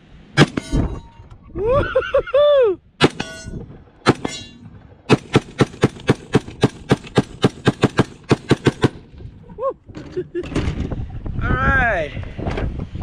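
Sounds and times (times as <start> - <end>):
rifle shots: 0.4 - 0.8, 3.0 - 3.4, 4.0 - 9.2.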